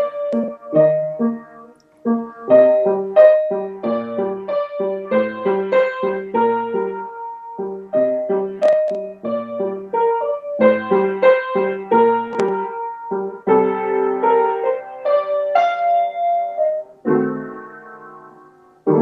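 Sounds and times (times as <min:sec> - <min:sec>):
upright piano playing: 0:00.0 - 0:19.0.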